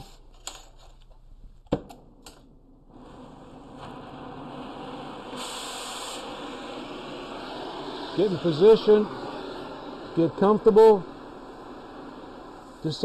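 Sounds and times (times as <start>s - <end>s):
torch flame hissing: 2.9s - 13.0s.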